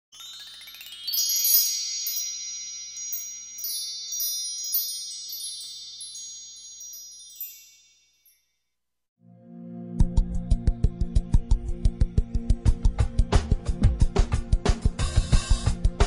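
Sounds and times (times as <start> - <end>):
high bell-like chimes: 0.1 - 8.8.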